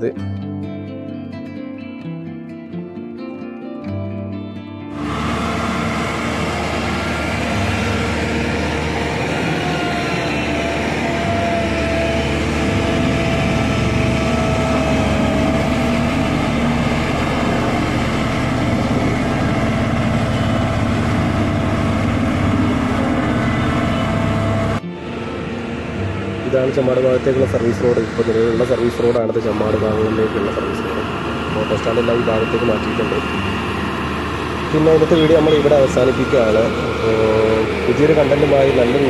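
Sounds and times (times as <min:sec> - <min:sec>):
diesel engine running: 0:04.9 - 0:39.0
faint wavering whine: 0:05.0 - 0:39.0
steady low hum: 0:05.0 - 0:39.0.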